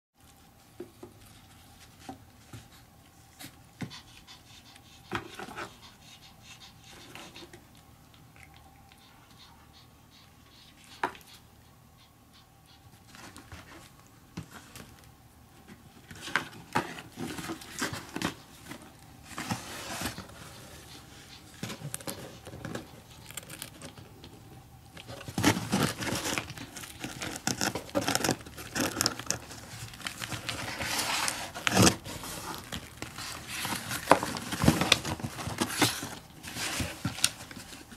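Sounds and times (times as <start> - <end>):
rustling and scrabbling in box: 15.7 - 24.1, 25.0 - 37.9
cat pawing at cardboard and straw: 25.0 - 37.9.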